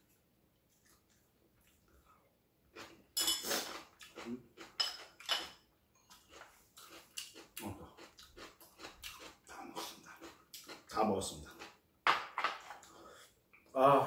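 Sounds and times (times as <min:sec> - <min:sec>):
chopsticks clinking on ceramic dishes: 0:04.8 - 0:05.6.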